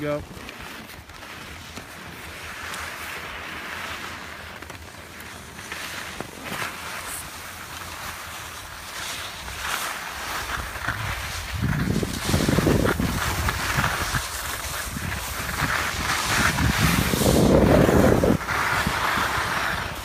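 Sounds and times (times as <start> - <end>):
skis sliding over snow: 0.0 - 20.0
wind rushing over microphone: 10.4 - 20.0.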